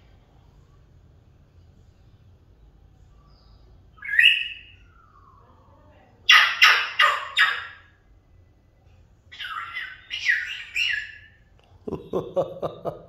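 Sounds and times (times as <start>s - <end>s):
parrot squawking and calling: 4.0s - 5.3s, 6.2s - 8.0s, 9.3s - 11.4s.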